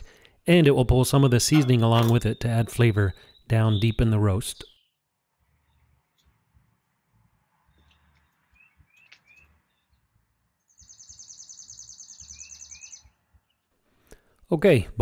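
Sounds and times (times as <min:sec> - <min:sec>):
birds chirping: 0:00.0 - 0:06.0, 0:07.6 - 0:14.3.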